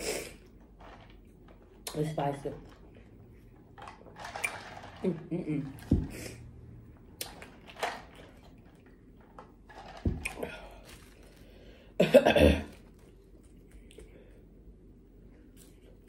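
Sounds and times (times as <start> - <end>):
person coughing: 12.0 - 12.8.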